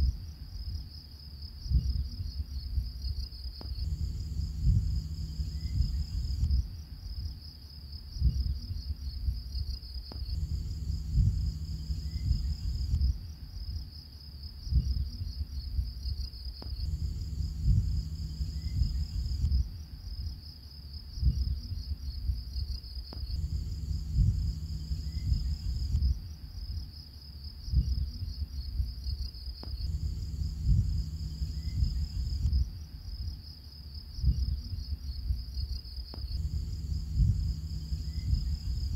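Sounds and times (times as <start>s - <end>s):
low tones and thuds: 3.6s - 6.8s, 10.1s - 13.4s, 16.6s - 19.8s, 23.2s - 26.3s, 29.6s - 32.8s, 36.2s - 38.9s.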